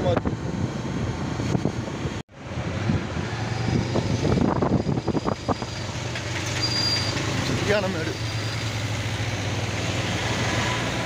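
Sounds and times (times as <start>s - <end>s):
wind rushing over microphone: 0.0s - 6.0s.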